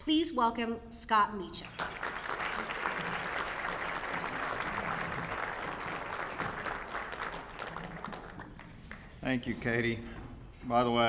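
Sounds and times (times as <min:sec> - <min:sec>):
audience applauding: 0:01.7 - 0:09.2.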